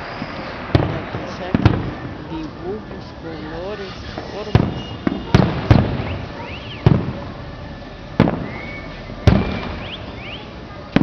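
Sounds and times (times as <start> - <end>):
rising whistles: 0.0 - 0.8, 3.2 - 10.6
firework shells booming: 0.0 - 11.0.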